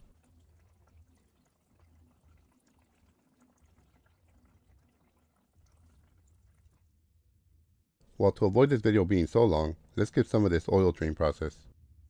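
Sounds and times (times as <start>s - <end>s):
oil splashing and trickling: 0.0s - 7.6s.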